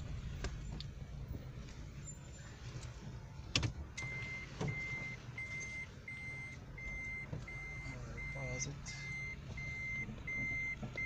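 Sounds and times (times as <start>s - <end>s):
car engine idling: 0.0s - 11.0s
reversing warning beeps: 4.0s - 11.0s.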